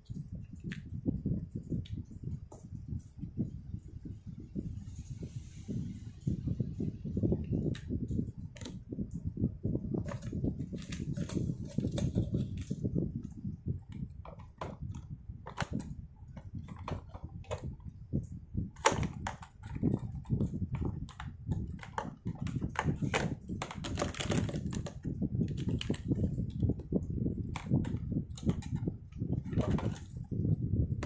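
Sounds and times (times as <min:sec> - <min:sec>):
plastic pens clattering: 0:09.8 - 0:30.3.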